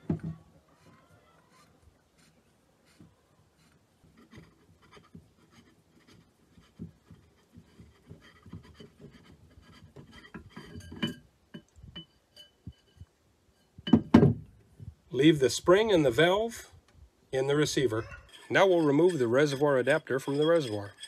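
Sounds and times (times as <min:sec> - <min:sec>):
threads scraping and clicking: 0:17.5 - 0:21.0.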